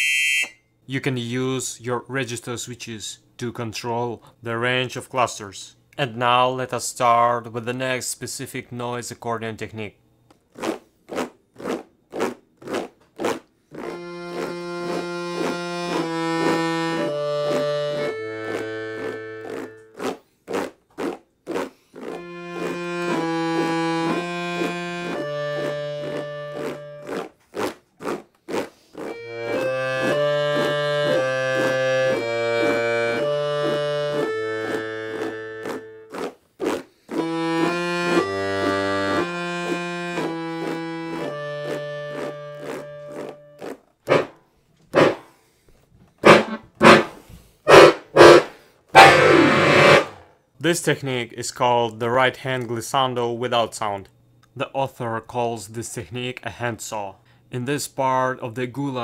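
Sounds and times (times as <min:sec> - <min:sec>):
piano accordion playing chords: 0:13.8 - 0:20.0, 0:22.1 - 0:27.2, 0:29.0 - 0:36.3, 0:37.1 - 0:44.3, 0:45.0 - 0:45.2, 0:46.2 - 0:50.2.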